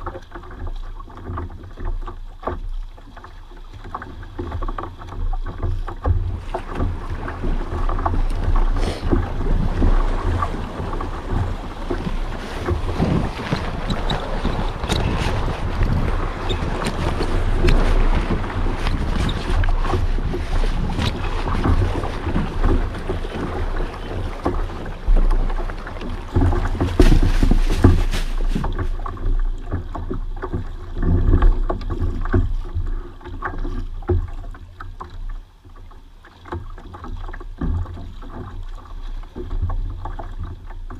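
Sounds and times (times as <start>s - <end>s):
water slapping kayak hull: 0.0s - 40.9s
wind buffeting microphone: 6.2s - 29.0s.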